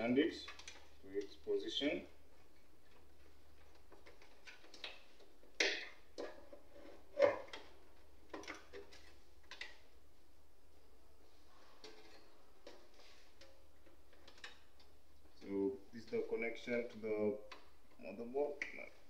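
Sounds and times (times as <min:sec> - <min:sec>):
cables clicking and knocking: 0:11.8 - 0:19.0.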